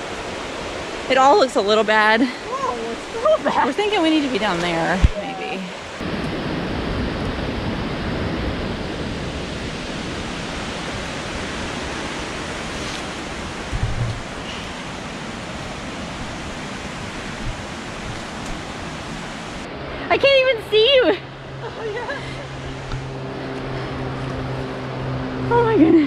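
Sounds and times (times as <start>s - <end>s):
waterfall rushing: 0.0s - 7.0s, 8.8s - 19.7s
low thump: 13.7s - 14.4s.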